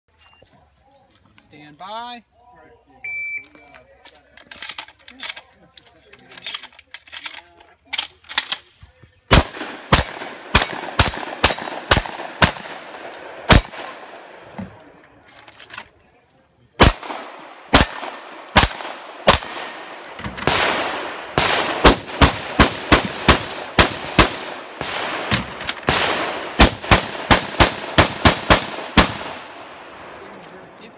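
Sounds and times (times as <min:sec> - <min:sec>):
pistol shots: 0:09.3 - 0:14.4, 0:16.8 - 0:30.2
shotgun shots: 0:09.3 - 0:14.5, 0:16.8 - 0:30.2.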